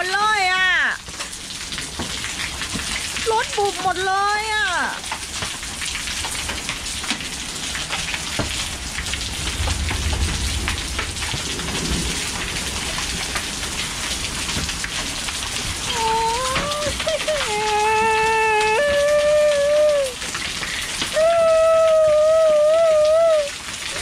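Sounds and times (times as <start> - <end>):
heavy rain and hail on concrete: 0.0 - 24.0
low rumble of thunder: 8.1 - 15.9.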